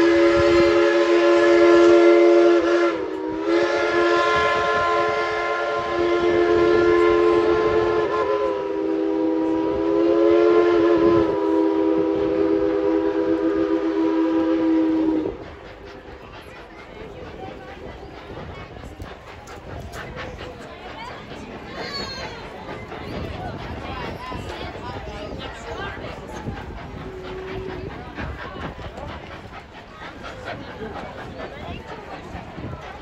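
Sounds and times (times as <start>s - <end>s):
steam locomotive whistle: 0.0s - 15.5s.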